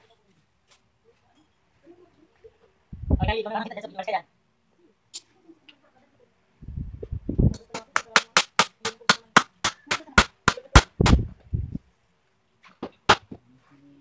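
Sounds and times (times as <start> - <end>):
hammer striking nails into wood: 7.5 - 11.3.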